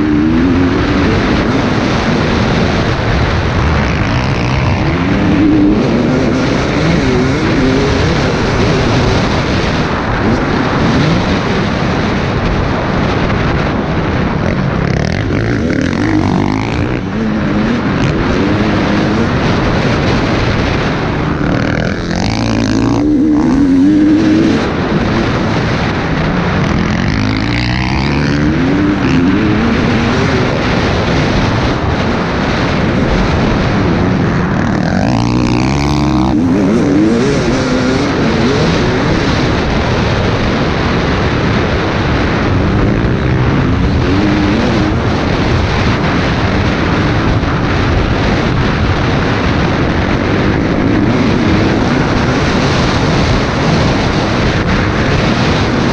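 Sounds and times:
dirt bike engine revving: 0.0s - 55.9s
wind rush on microphone: 0.0s - 55.9s.

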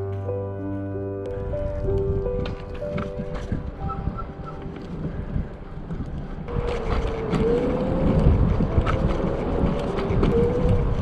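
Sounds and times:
low rumble: 1.2s - 11.0s.

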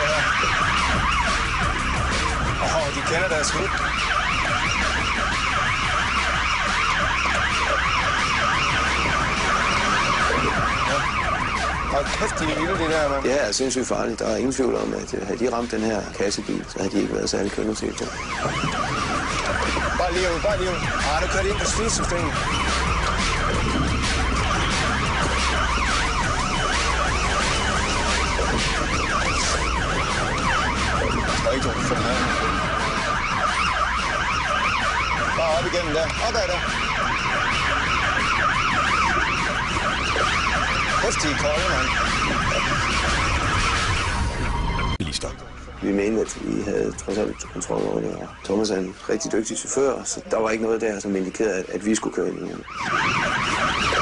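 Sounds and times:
engine and road rumble: 0.0s - 51.8s
police siren yelping: 0.0s - 54.0s.

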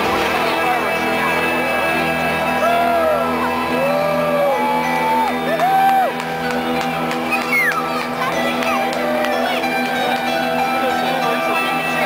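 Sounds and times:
music with sustained tones: 0.0s - 12.0s
crowd whooping and yelling: 2.5s - 6.3s, 7.3s - 9.7s.

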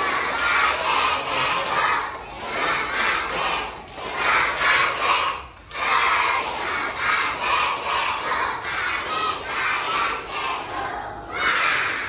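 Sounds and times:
children shouting in unison: 7.5s - 12.0s.

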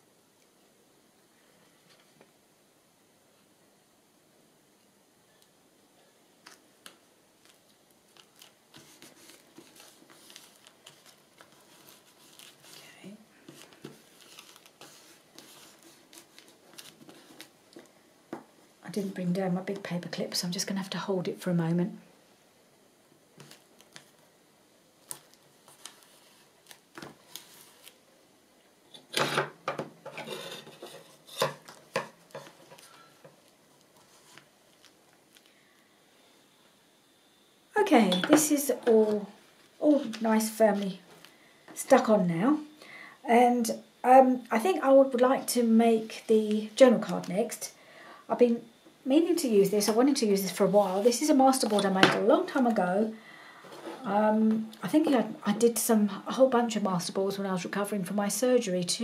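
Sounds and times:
paper rustling and clicking: 6.4s - 12.8s, 13.5s - 17.9s, 23.4s - 24.2s, 25.0s - 28.0s.

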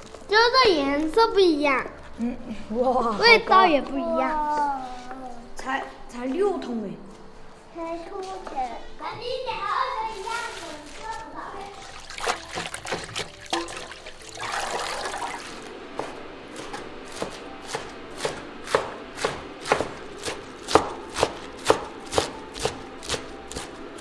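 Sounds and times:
hands swishing leaves in water: 10.1s - 15.7s
cleaver chopping on wooden board: 16.0s - 23.7s.

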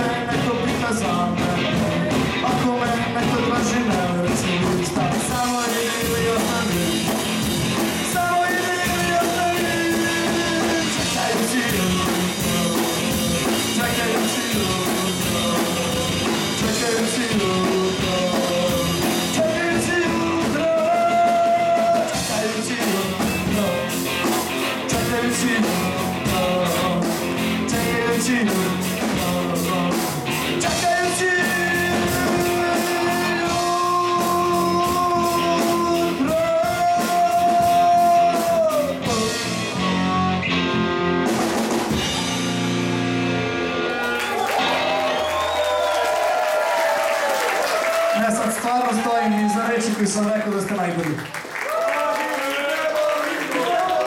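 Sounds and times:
steady drum beat: 0.0s - 40.4s, 41.2s - 43.3s
live rock band playing: 0.0s - 52.3s.

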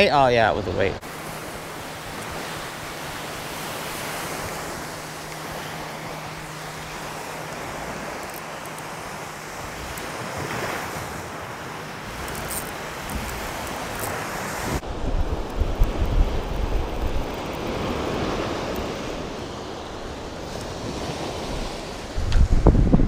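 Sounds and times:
surf washing onto beach: 1.0s - 23.0s
wind buffeting microphone: 9.0s - 23.0s.

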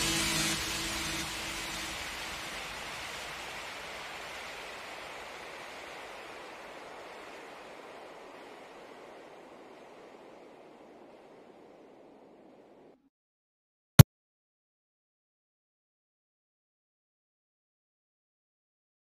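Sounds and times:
wind rushing on microphone: 2.1s - 13.0s.

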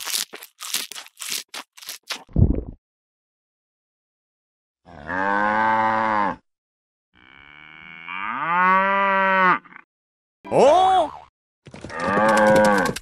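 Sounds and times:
cow mooing: 4.9s - 6.4s, 7.2s - 9.8s.

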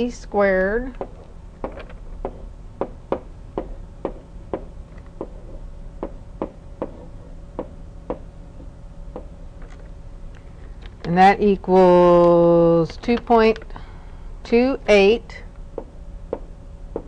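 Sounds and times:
faint steady hum: 0.0s - 17.0s
stylus tapping on tablet screen: 1.0s - 8.2s.

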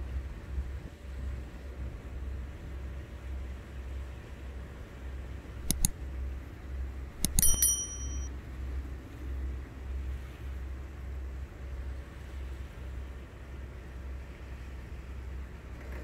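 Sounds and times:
sharp metallic clinks: 5.6s - 5.9s, 7.2s - 8.3s.

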